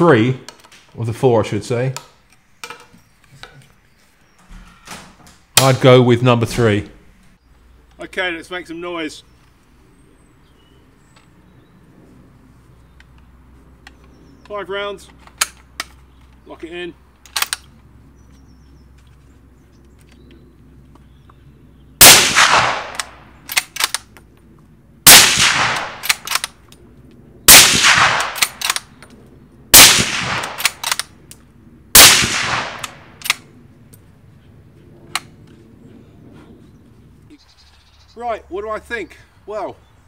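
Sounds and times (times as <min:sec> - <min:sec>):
rifle bolt clicks: 0:17.2 - 0:17.7, 0:22.0 - 0:24.2, 0:25.1 - 0:26.7, 0:27.5 - 0:29.2, 0:29.8 - 0:31.4, 0:32.0 - 0:33.4
suppressed rifle shots: 0:22.0 - 0:24.0, 0:25.0 - 0:26.6, 0:27.5 - 0:29.0, 0:29.7 - 0:31.1, 0:31.9 - 0:33.4.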